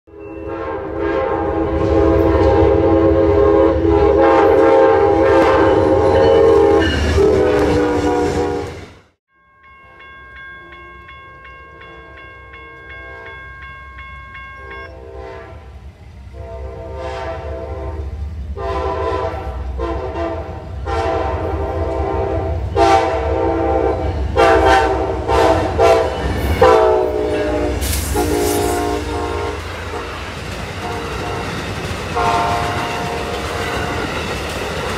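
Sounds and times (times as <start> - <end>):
train horn blasts: 0.1 - 9.0, 12.8 - 13.4, 14.6 - 30.2, 30.8 - 34.3
train wheels rumbling on rails: 0.9 - 9.1, 14.8 - 34.9
crossing bell ringing: 5.6 - 7.4, 9.3 - 15.1, 25.0 - 34.9.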